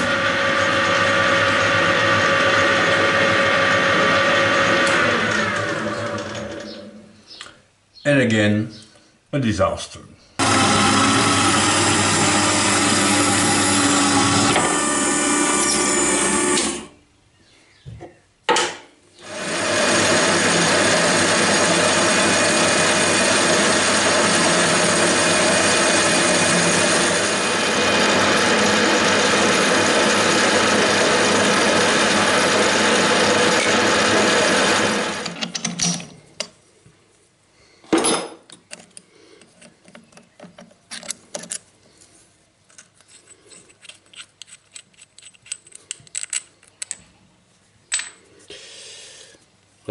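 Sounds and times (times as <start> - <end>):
bandsaw cutting metal: 10.4 - 16.9, 19.2 - 35.4
metal lathe running: 10.4 - 16.9, 19.2 - 35.4.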